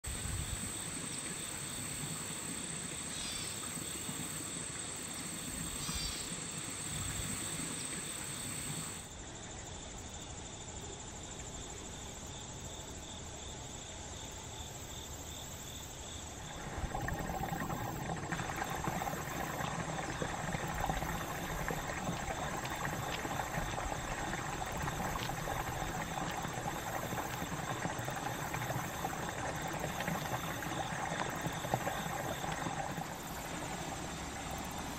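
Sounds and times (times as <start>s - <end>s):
water rushing through culvert: 0.0s - 9.1s, 16.4s - 34.9s
insects trilling: 0.1s - 34.9s.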